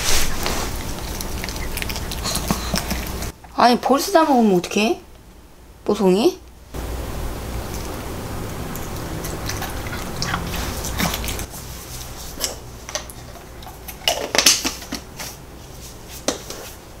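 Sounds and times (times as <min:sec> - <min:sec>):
dog chewing and lip smacking: 0:00.4 - 0:03.4, 0:07.7 - 0:11.5.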